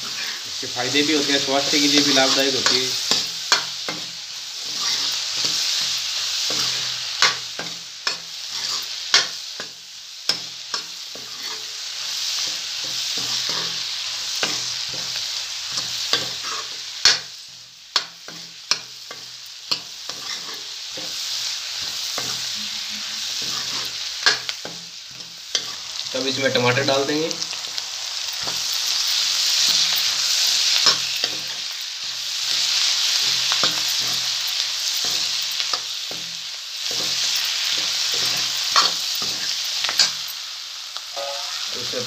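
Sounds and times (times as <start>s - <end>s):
onions sizzling in oil: 0.0s - 42.0s
ladle scraping pan: 22.2s - 24.5s.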